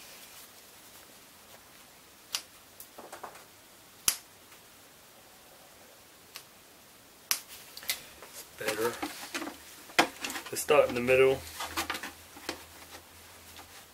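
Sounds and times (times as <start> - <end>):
rustling of rubber trim: 7.5 - 13.9.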